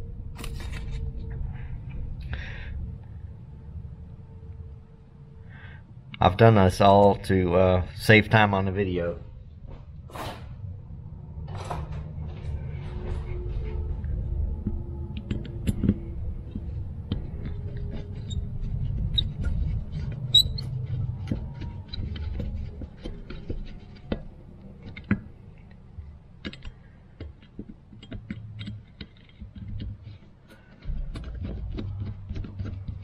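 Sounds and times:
low rumble: 0.0 - 26.4
screwdriver clicks and scrapes on metal: 14.6 - 33.0.

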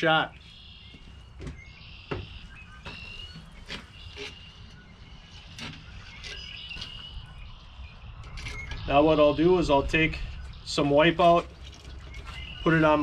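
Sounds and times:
low wind rumble: 0.3 - 13.0.

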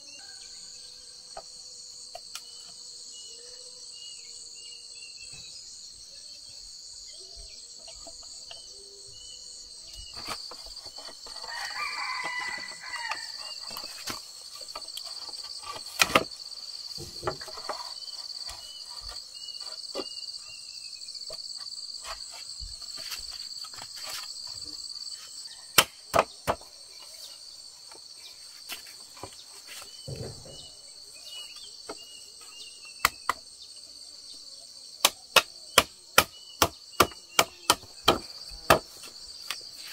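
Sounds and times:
insect chorus chirring: 0.0 - 39.9.

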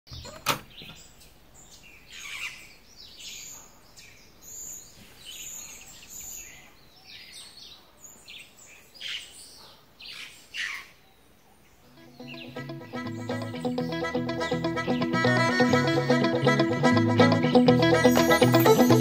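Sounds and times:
birds calling and chirping: 0.1 - 16.0
door latch click: 0.2 - 1.0.

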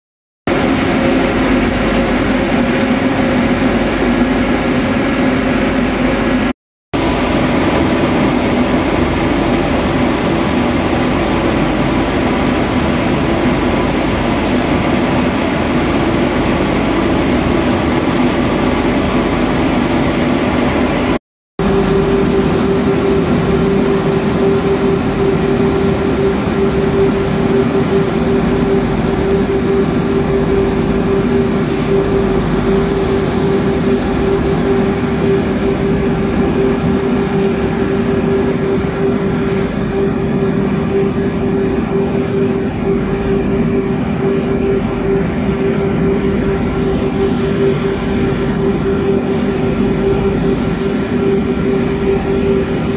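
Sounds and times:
higher steady hum: 0.5 - 52.9
shot blasting machine drone: 0.5 - 52.9.

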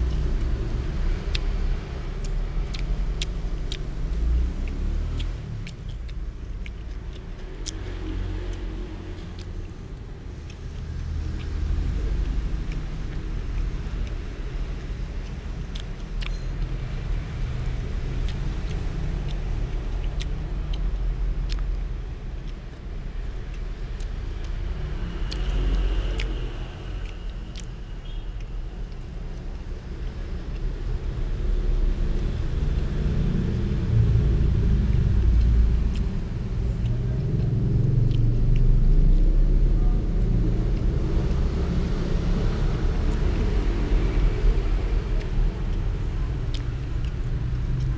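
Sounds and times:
steady low rumble: 0.0 - 47.9.

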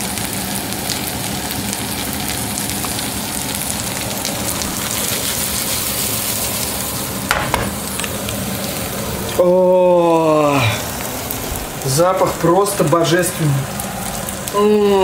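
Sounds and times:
food sizzling in a pan: 0.0 - 15.0
brief knock: 7.3 - 7.8.

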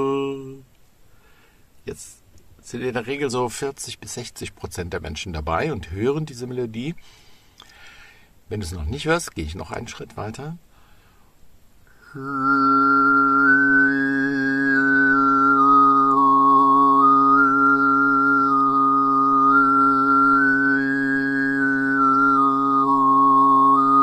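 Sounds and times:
man overtone singing: 0.0 - 0.7, 12.0 - 24.0.

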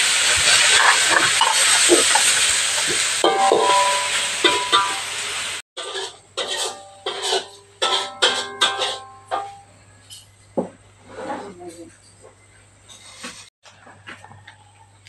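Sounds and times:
greens sizzling in a wok: 0.0 - 9.0
metal spatula scraping pan: 0.3 - 5.0, 5.8 - 10.4, 11.0 - 11.9.

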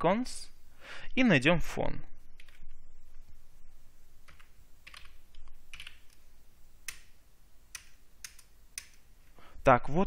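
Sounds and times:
keyboard keystrokes: 4.3 - 6.2, 7.7 - 9.0.

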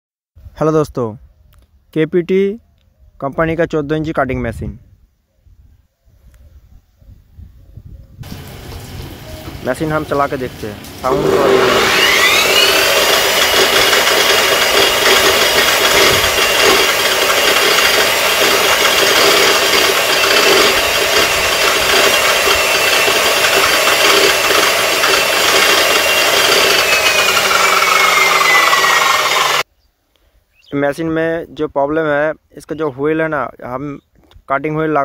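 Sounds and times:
cut-off saw motor whine: 8.2 - 29.6.

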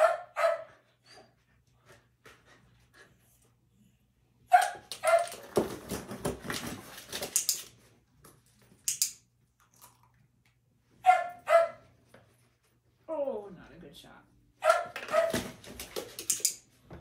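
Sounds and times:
dog barking: 0.0 - 0.8, 4.5 - 5.4, 11.0 - 11.8, 14.6 - 15.5.

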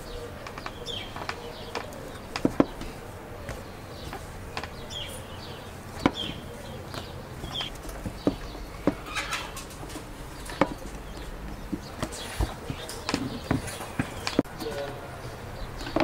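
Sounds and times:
high bird chirps: 0.0 - 16.0
wooden knocks: 0.4 - 5.0, 6.0 - 15.0
rolling pin rolling dough: 0.5 - 5.0.

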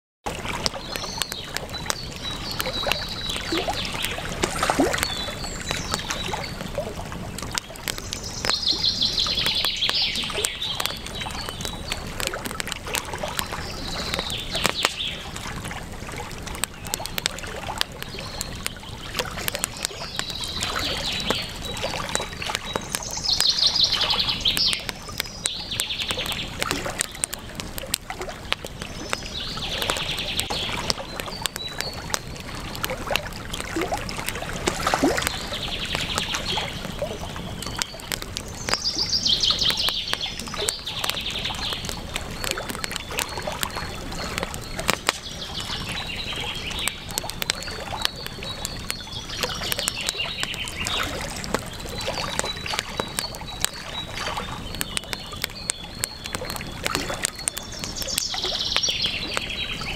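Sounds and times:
campfire crackling: 0.3 - 59.9
river flowing: 0.3 - 59.9
birds chirping: 0.6 - 15.7, 16.4 - 33.3, 34.0 - 59.9.

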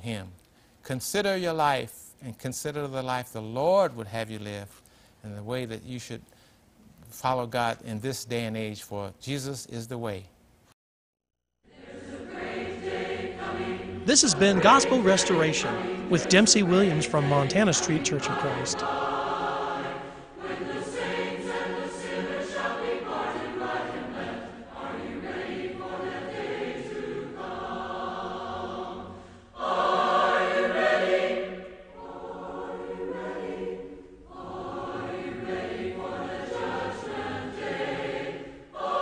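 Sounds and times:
choir singing a hymn: 11.7 - 39.0.

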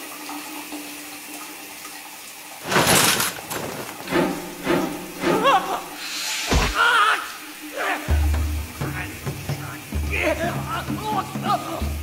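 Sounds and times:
shower water running: 0.0 - 12.0
water rushing surge: 2.6 - 8.0.

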